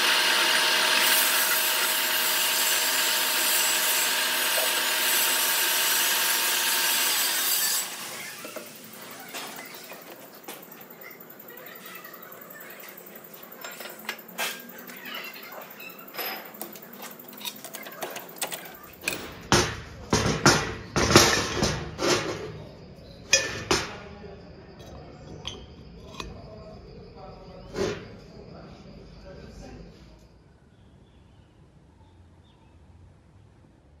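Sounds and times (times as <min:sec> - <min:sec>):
metal parts clinking and knocking: 0:15.8 - 0:19.5.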